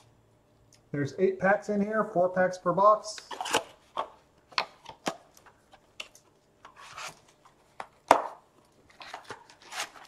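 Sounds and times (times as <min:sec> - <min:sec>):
cardboard scrapes and rustles: 0:06.8 - 0:07.2.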